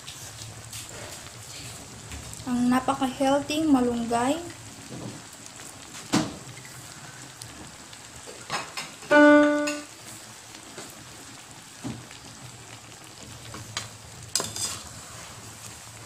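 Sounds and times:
simmering pan hiss: 0.0s - 16.0s
piano-like note: 9.1s - 10.0s.

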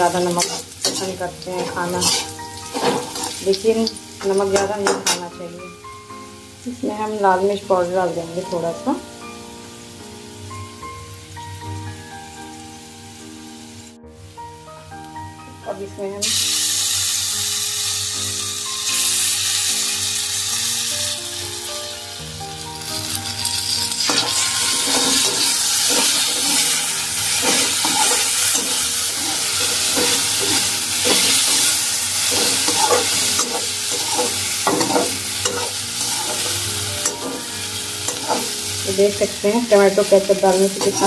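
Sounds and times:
metal spatula scraping: 0.0s - 5.2s, 23.6s - 38.8s, 40.3s - 41.0s
potatoes sizzling in oil: 0.0s - 41.0s.

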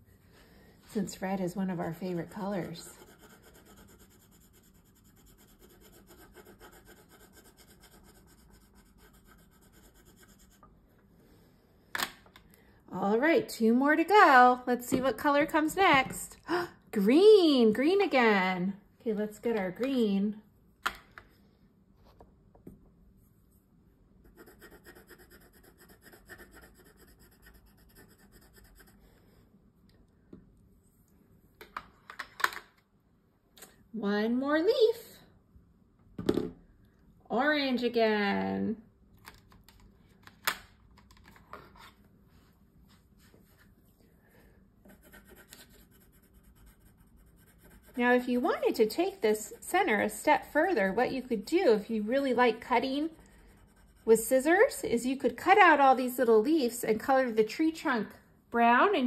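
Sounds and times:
pencil scribbling on paper: 1.7s - 10.6s, 24.2s - 29.1s, 44.9s - 50.2s, 52.6s - 54.8s.

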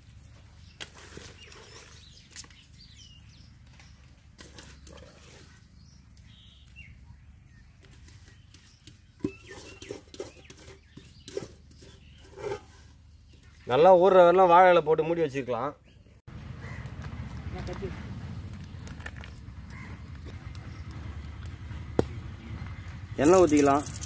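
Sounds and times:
knocks and scrapes on metal bowl: 4.4s - 5.7s, 7.8s - 13.0s
hands squelching wet chicken: 23.2s - 24.0s.

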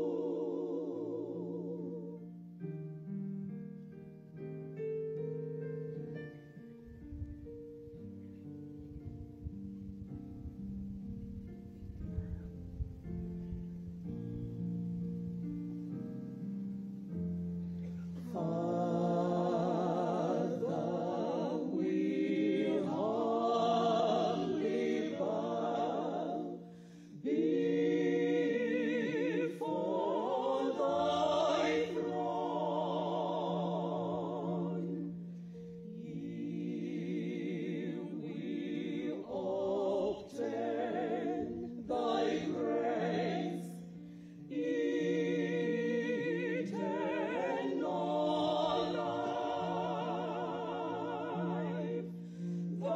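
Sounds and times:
choir singing a hymn: 0.0s - 2.7s, 17.8s - 52.9s
held keyboard accompaniment: 0.0s - 52.9s.

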